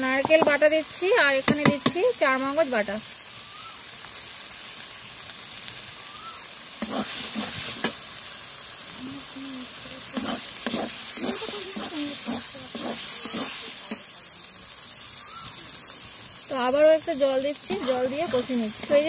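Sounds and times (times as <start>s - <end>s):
masala sizzling in pan: 0.0s - 19.0s
metal spatula scraping pan: 6.8s - 8.0s, 10.1s - 14.0s, 17.7s - 19.0s.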